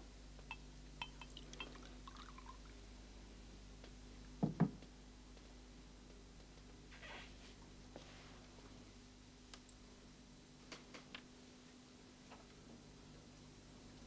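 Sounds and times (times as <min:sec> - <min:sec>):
glass clinks: 0:00.5 - 0:01.9
water pouring: 0:01.0 - 0:02.7.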